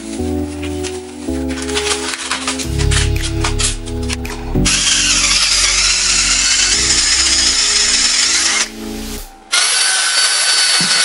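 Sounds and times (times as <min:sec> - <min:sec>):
power drill boring through wood: 0:04.7 - 0:08.7, 0:09.5 - 0:11.0.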